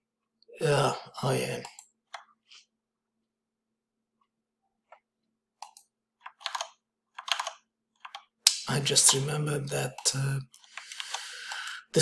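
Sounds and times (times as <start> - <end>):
mouse and keyboard clicks: 5.6 - 9.3.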